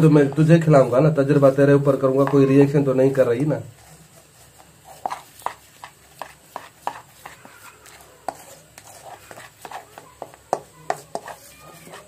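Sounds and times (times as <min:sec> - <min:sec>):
metal spoon scraping steel bowl: 0:04.9 - 0:12.0.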